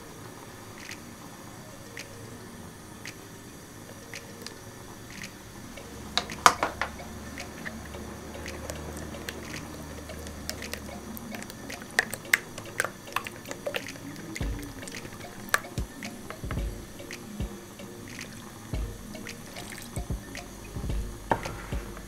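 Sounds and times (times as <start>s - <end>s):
egg squishing and stirring: 8.4s - 16.4s, 19.3s - 20.0s.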